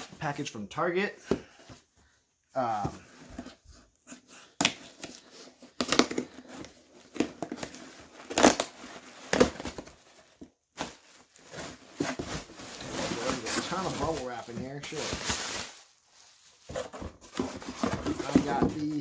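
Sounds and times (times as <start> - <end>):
cardboard flaps tearing: 7.1 - 9.9.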